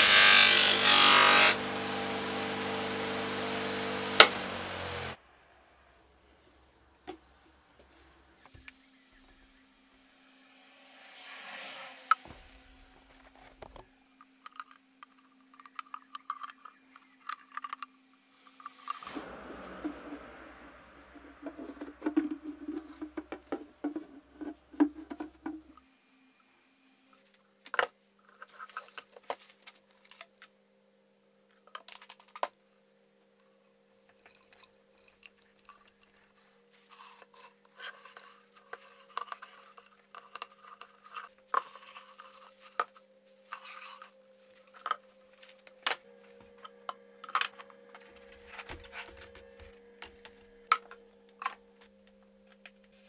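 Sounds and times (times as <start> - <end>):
faint steady hum: 12.3 - 53.0.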